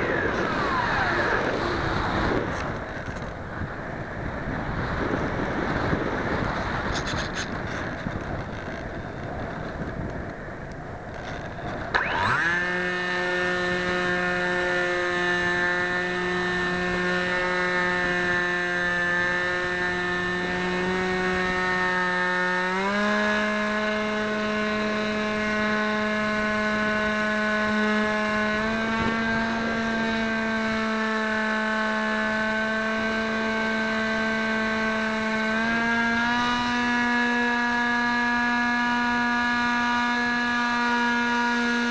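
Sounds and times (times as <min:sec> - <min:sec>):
wind rushing over camera: 0:00.0 - 0:30.9
model aircraft motor whine: 0:00.0 - 0:41.9.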